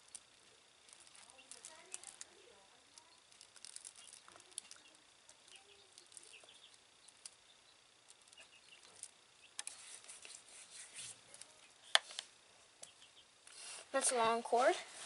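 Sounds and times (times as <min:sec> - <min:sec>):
packaging rustling: 0:00.9 - 0:02.3, 0:03.3 - 0:04.8.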